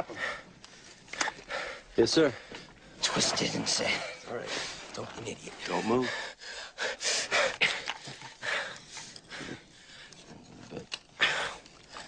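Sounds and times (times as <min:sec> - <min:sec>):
man breathing heavily: 0:00.0 - 0:03.0, 0:05.7 - 0:10.6.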